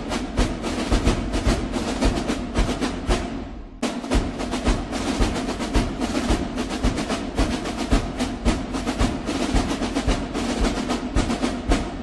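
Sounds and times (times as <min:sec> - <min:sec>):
bass drum beat: 0:00.0 - 0:12.0
snare drum rolls: 0:00.0 - 0:12.0.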